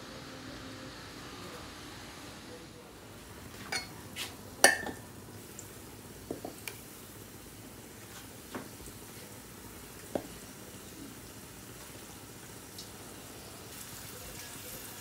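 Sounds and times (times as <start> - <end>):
oil sizzling: 3.0 - 15.0
metal tongs tapping a pan: 4.6 - 5.0.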